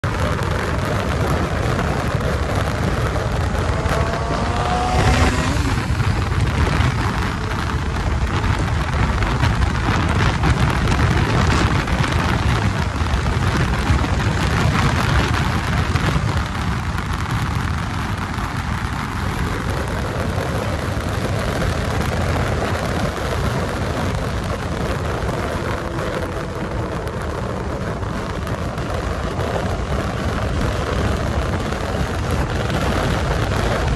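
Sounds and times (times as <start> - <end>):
rising whine: 0.0 - 13.4
motorcycle engine running: 0.0 - 33.9
wind buffeting microphone: 0.0 - 33.9.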